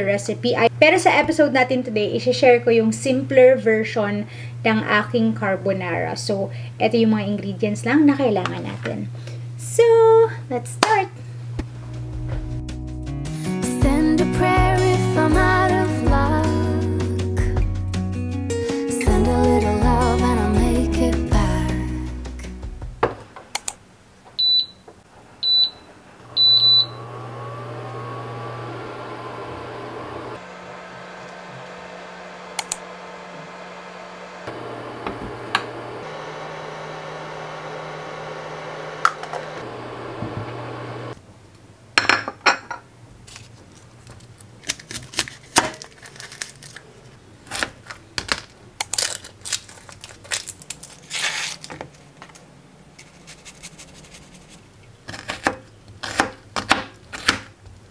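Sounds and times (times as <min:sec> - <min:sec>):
cooktop humming: 0:24.2 - 0:41.2
cooktop beeps: 0:24.4 - 0:27.1
knife chopping on cutting board: 0:55.1 - 0:57.5.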